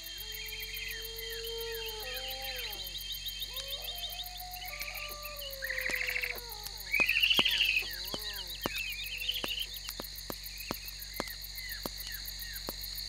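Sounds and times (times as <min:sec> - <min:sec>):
crickets and insects trilling: 0:00.0 - 0:13.0
whistled bird calls: 0:00.3 - 0:09.9.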